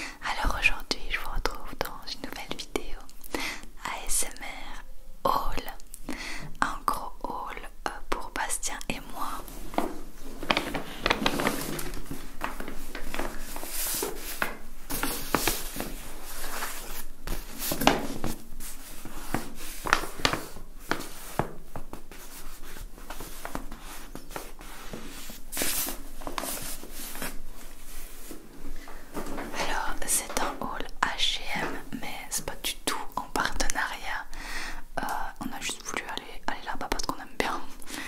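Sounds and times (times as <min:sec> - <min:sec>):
paper bag rustling: 0:09.5 - 0:21.3, 0:22.3 - 0:29.5.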